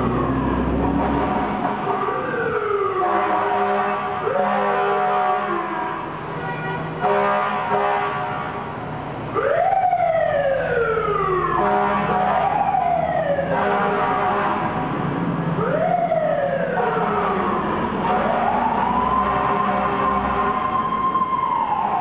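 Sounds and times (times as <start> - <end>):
fire engine siren wailing: 0.0 - 8.7, 9.3 - 22.0
fire engine air horn blasts: 0.9 - 2.2, 2.9 - 8.7, 11.6 - 12.6, 13.4 - 14.9, 16.7 - 20.8.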